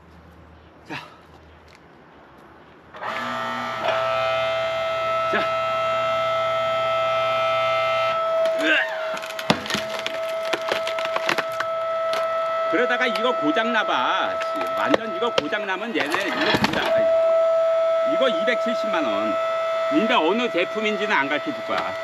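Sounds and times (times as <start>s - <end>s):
log splitter whining: 2.9s - 22.0s
wood cracking and splintering: 8.4s - 13.6s, 14.3s - 17.2s, 21.7s - 22.0s.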